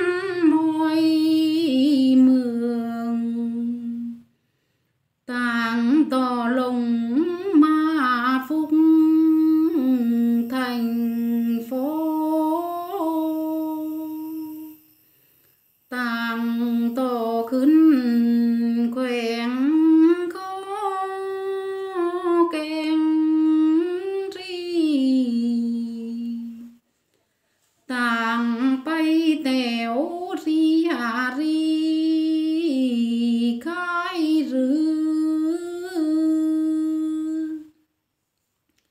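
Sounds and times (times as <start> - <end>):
woman singing unaccompanied: 0.0 - 4.3, 5.2 - 14.9, 15.8 - 26.8, 27.9 - 37.9.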